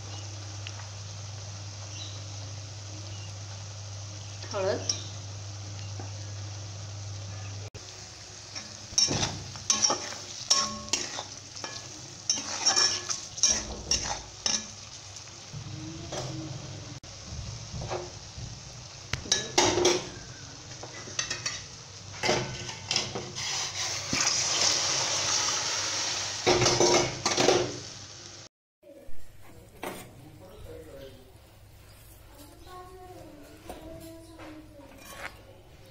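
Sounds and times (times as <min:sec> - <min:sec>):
vegetables sizzling in oil: 0:00.0 - 0:28.5
spatula scraping a pan: 0:08.6 - 0:14.9, 0:20.8 - 0:27.0, 0:34.9 - 0:35.6.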